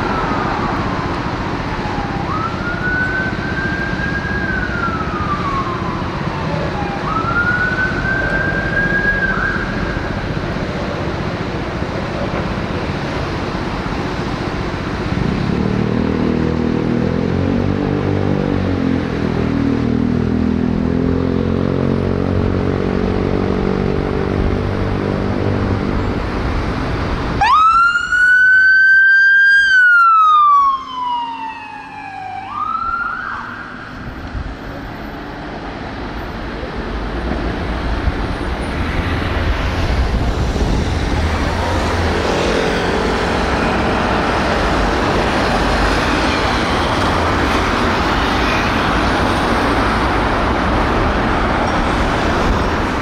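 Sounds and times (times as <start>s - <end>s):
emergency vehicle siren wailing: 0.0s - 11.1s, 27.3s - 35.4s, 40.0s - 53.0s
traffic and tyre noise: 0.0s - 53.0s.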